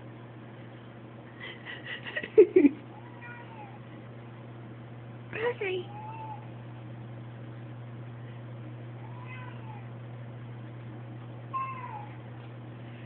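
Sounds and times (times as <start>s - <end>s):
steady low hum: 0.0s - 13.0s
cat meowing: 2.9s - 3.8s, 5.9s - 6.5s, 9.0s - 9.9s, 11.5s - 12.2s.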